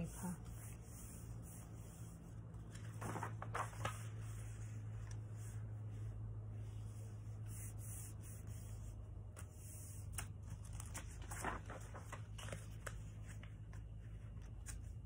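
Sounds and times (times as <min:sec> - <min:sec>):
paper rustling and crackling: 0:02.6 - 0:05.6, 0:10.0 - 0:15.0.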